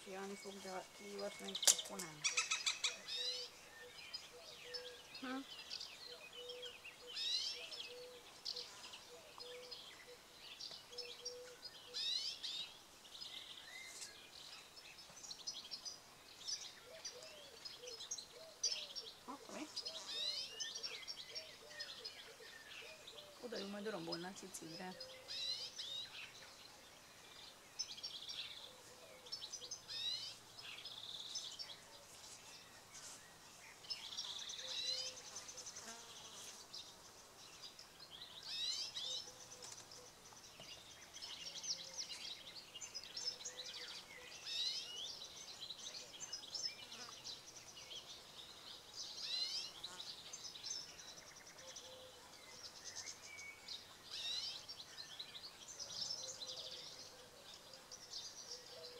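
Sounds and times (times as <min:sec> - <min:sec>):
fledglings chirping: 0:00.0 - 0:12.5.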